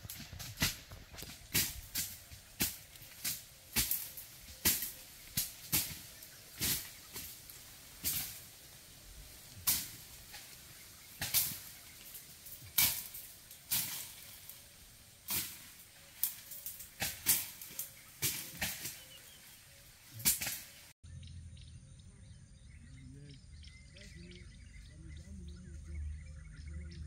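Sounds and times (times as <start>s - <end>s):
short hissy rustles: 0.0s - 21.0s.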